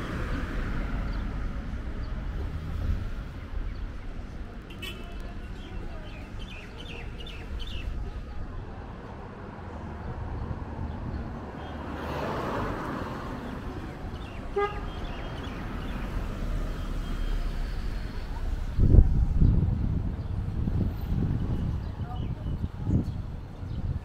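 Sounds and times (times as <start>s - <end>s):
cars passing: 0.0s - 22.6s
birds chirping: 3.2s - 8.4s, 13.3s - 18.8s
car horn toot: 14.5s - 15.0s.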